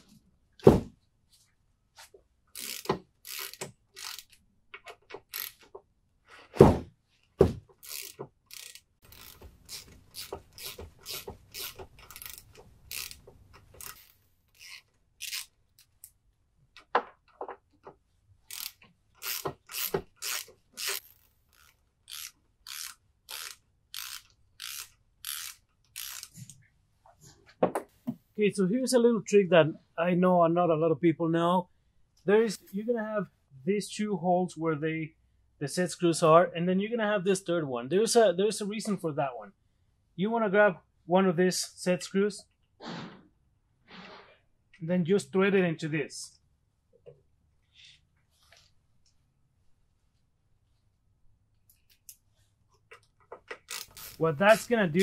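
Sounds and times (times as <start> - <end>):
ratchet pawl clicks: 2.6 - 4.3, 5.3 - 5.6, 7.8 - 15.5, 18.5 - 26.4, 53.5 - 54.7.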